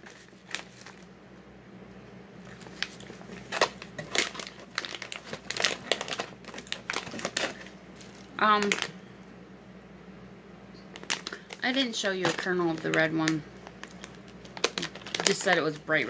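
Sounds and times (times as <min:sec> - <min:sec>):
plastic bag crinkling: 0:00.0 - 0:01.1, 0:02.4 - 0:09.0, 0:10.9 - 0:16.0.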